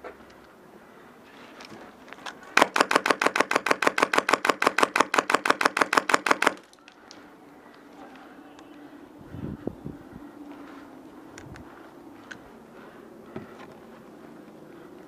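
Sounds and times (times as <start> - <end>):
airsoft gun full-auto burst: 2.6 - 6.7.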